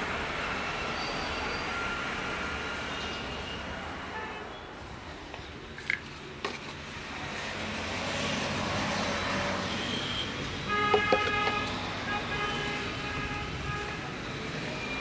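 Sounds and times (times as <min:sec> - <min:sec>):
road traffic passing: 0:00.0 - 0:15.0
vehicle horn held: 0:10.7 - 0:11.8.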